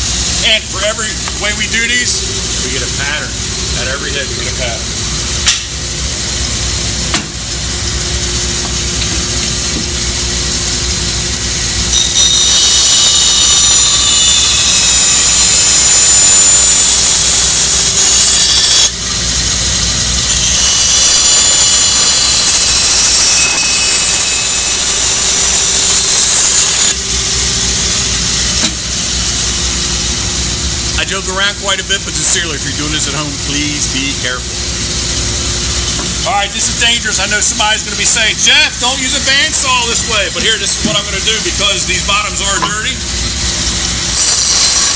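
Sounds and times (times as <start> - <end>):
saw blade whining: 9.0 - 30.4, 35.8 - 44.9.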